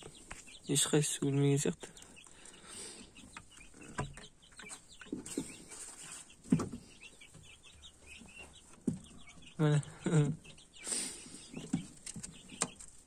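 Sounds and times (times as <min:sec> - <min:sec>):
chickens clucking: 0:00.0 - 0:13.0
faint rustling of straw: 0:04.7 - 0:07.5.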